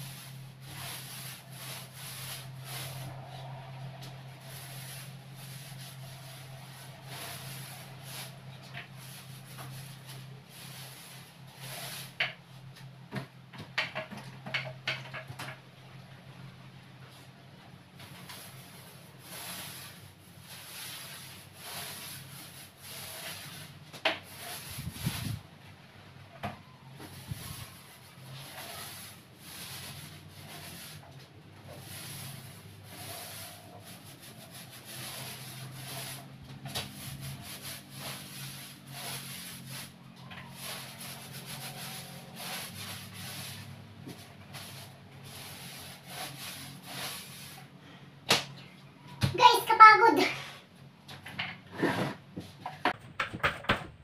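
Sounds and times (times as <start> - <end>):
paint roller swishing on wall: 0.0 - 53.4.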